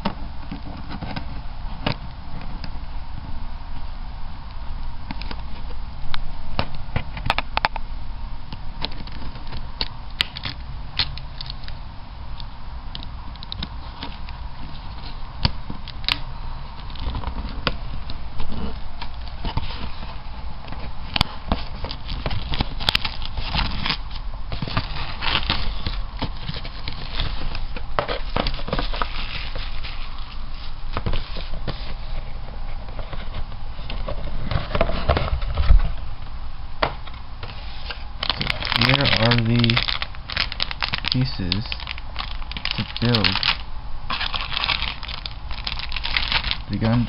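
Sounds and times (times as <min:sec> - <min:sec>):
plastic bags crinkling: 0:21.6 - 0:30.4, 0:37.9 - 0:47.0.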